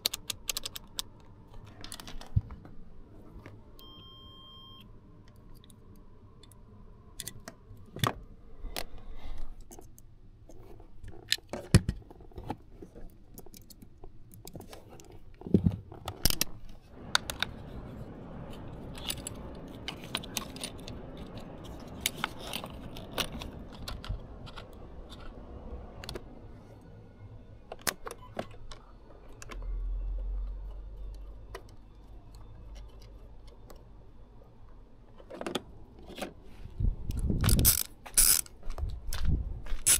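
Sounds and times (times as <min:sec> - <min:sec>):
short low rumble: 0:16.9 - 0:26.6.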